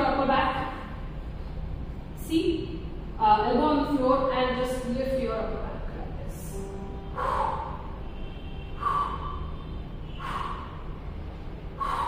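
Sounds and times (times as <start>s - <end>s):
woman breathing hard: 6.9s - 12.0s.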